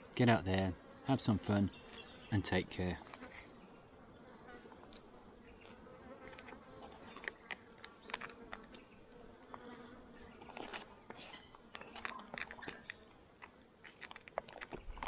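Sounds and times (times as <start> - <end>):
flying insect buzzing: 3.0 - 14.0.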